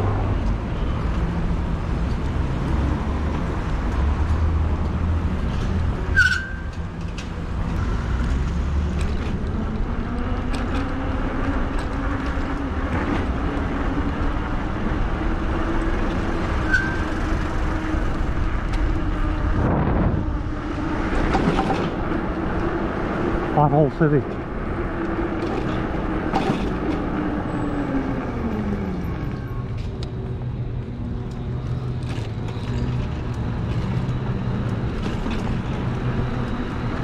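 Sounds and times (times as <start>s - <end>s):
road traffic rumble: 0.0s - 37.0s
short high squeak: 6.1s - 6.7s, 16.6s - 17.1s.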